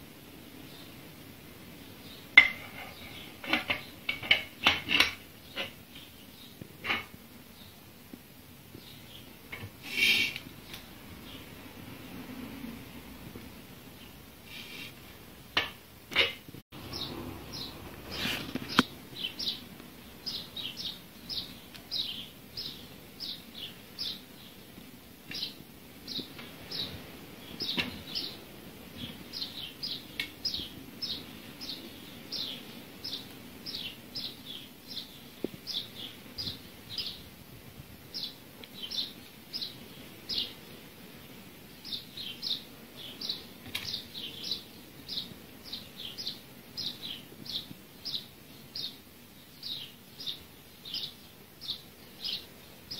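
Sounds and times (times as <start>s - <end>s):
small bird chirping: 16.1s - 37.3s, 38.1s - 40.9s, 41.7s - 52.9s.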